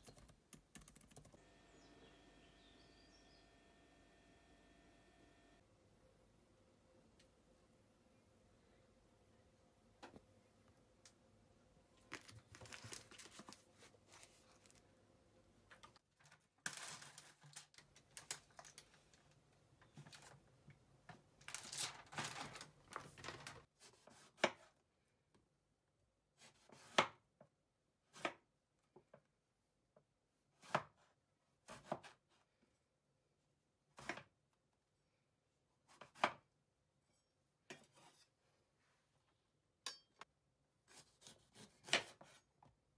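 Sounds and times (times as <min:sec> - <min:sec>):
plastic punnet crinkling: 0:12.0 - 0:14.8, 0:21.4 - 0:23.6.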